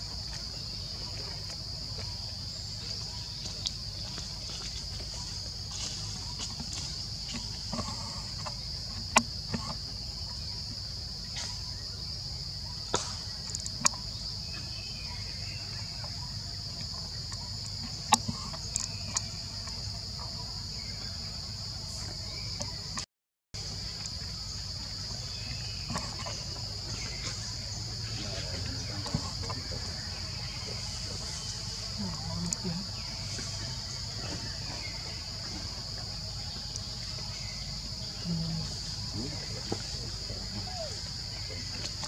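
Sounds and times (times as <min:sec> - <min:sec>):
forest insects droning: 0:00.0 - 0:42.0.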